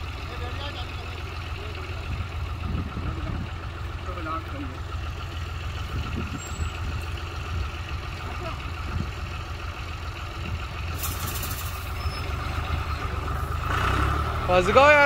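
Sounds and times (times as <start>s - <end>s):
tractor diesel engine running: 0.0s - 15.0s
high hiss of fertilizer spreader: 10.9s - 12.0s.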